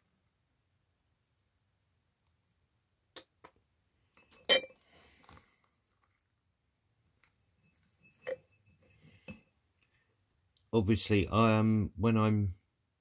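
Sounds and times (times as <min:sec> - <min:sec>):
sharp clink: 0:04.2 - 0:04.8.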